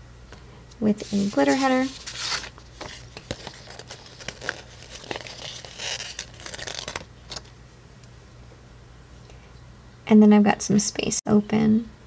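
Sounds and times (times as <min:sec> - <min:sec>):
paper crinkling and rustling: 0:01.0 - 0:07.5.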